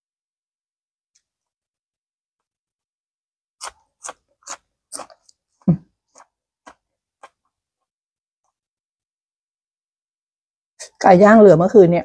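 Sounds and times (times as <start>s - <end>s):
green onion crunching: 3.6s - 5.4s.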